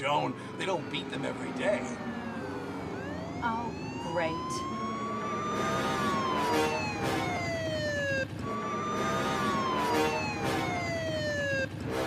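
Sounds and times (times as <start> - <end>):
police siren wailing: 0.0 - 12.0.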